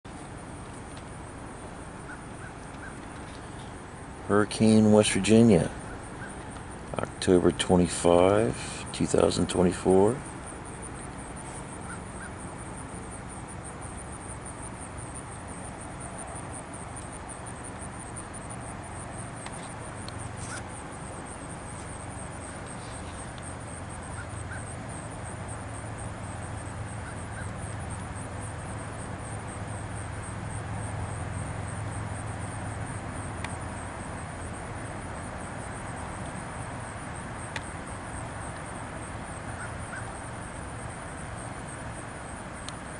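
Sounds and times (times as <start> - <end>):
steady hiss: 0.1 - 42.9
faint bird calls: 1.6 - 3.8, 5.7 - 7.0, 11.4 - 12.6, 19.4 - 25.3, 26.3 - 28.0, 39.5 - 40.2.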